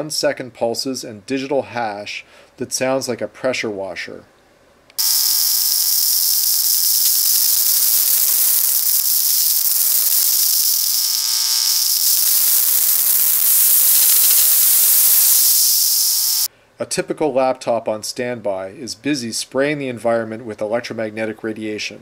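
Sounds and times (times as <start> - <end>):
buzzy mains hum: 5.0 - 16.5
loud digital hiss: 5.0 - 16.5.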